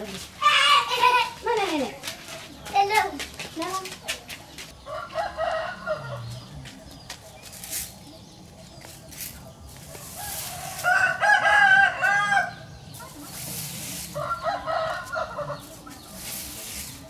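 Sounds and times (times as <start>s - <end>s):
rooster crowing: 4.8s - 6.5s, 10.2s - 12.6s, 14.2s - 15.7s.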